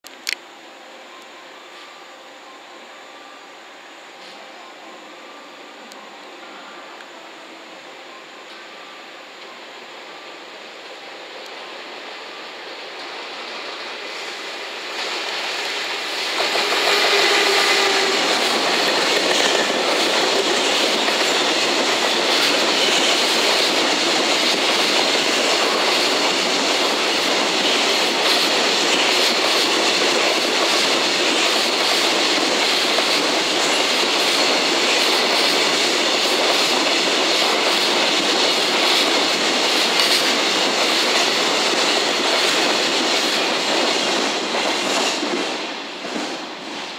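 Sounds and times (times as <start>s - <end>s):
wheels rushing on rail: 3.2s - 46.9s
clickety-clack over rail joints: 15.6s - 46.9s.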